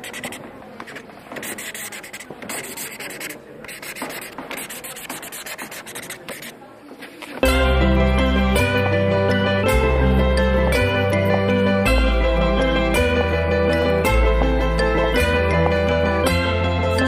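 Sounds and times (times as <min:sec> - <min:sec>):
scratching and rubbing with clicks: 0:00.0 - 0:07.4
music with sustained chord: 0:07.5 - 0:17.0.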